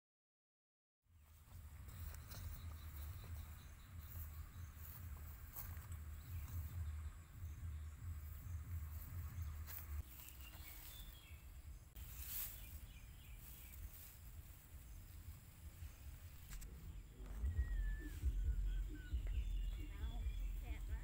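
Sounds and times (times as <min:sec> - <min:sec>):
wind rumbling on microphone: 0:01.6 - 0:12.0
faint high chirps: 0:16.7 - 0:20.7.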